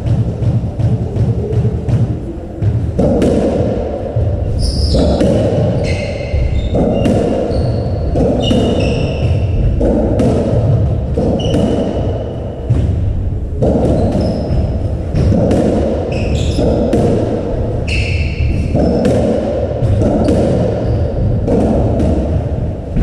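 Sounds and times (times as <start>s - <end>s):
ball bouncing: 0.0s - 23.0s
racket striking ball: 0.0s - 23.0s
shoes squeaking on wooden floor: 4.5s - 9.7s, 16.1s - 16.9s, 17.8s - 19.0s.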